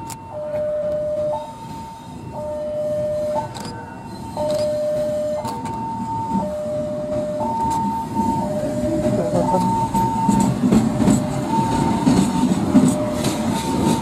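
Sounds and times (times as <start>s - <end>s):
diesel locomotive rumble: 0.0s - 14.0s
level crossing alarm two tones: 0.2s - 3.5s, 4.1s - 10.5s, 11.3s - 12.3s.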